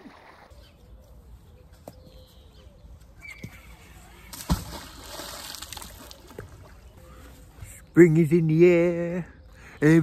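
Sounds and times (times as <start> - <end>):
magnet splashing into water: 4.3 - 6.6
water spattering: 4.3 - 6.6.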